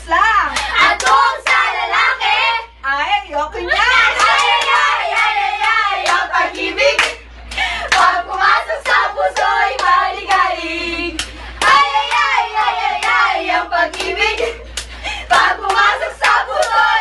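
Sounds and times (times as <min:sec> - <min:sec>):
group singing together: 0:00.7 - 0:02.7, 0:03.8 - 0:17.0
hand claps: 0:04.2 - 0:06.2, 0:07.0 - 0:10.4, 0:11.2 - 0:12.4, 0:13.9 - 0:15.0, 0:15.7 - 0:16.8.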